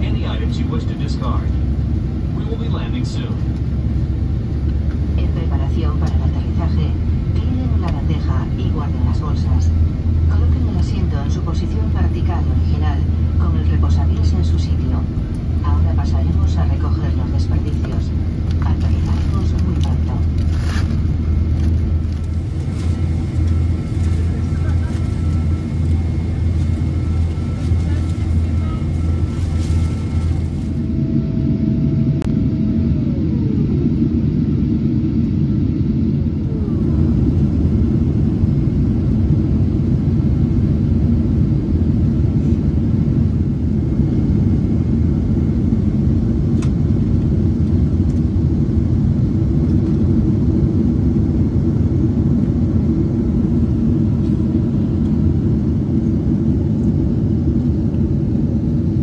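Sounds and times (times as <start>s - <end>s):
airliner cabin engine noise: 0.0s - 59.0s.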